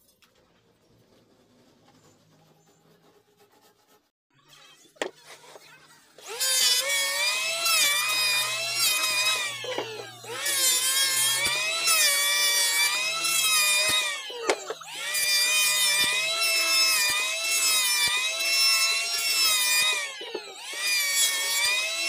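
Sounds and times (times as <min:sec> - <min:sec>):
electric planer cutting wood: 0:06.2 - 0:22.0.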